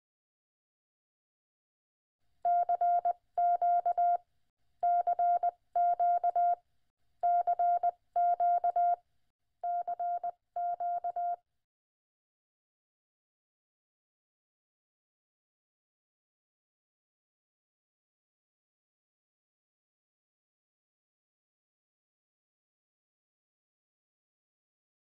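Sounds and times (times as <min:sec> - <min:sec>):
morse code beeps: 0:04.8 - 0:06.6, 0:07.3 - 0:09.0, 0:09.7 - 0:11.4.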